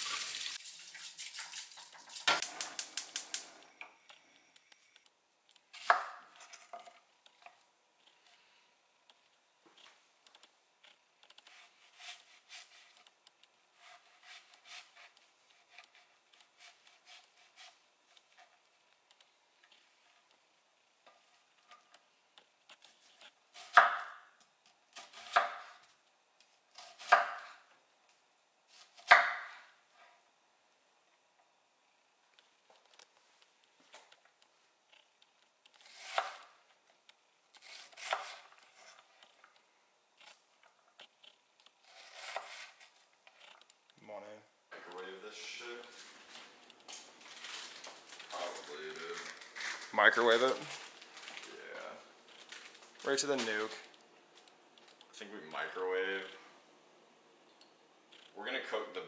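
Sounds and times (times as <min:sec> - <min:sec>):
knife cutting onion: 0:05.7 - 0:06.9, 0:10.9 - 0:18.6, 0:22.7 - 0:25.9, 0:26.7 - 0:27.7, 0:28.7 - 0:29.8, 0:35.7 - 0:36.8, 0:37.5 - 0:39.4, 0:41.0 - 0:43.6.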